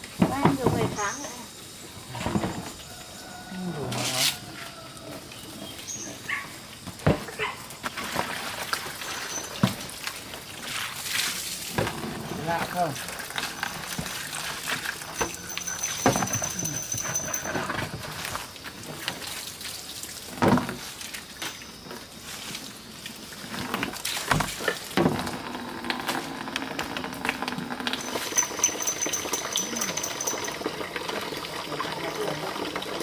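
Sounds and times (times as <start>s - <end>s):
water splashing in plastic basin: 6.9s - 33.0s.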